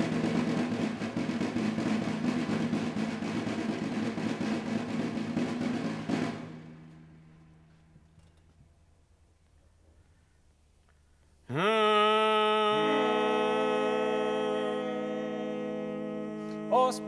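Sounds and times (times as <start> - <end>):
marching drum roll: 0.0 - 7.4.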